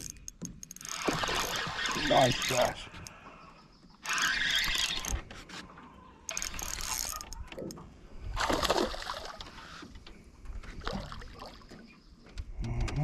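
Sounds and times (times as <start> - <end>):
fishing reel gears cranking: 0.0 - 3.1, 4.0 - 5.3, 6.3 - 7.6.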